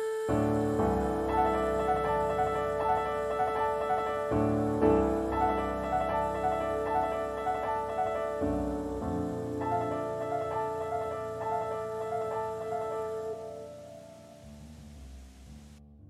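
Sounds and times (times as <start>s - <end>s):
solo piano slow passage: 0.0s - 16.0s.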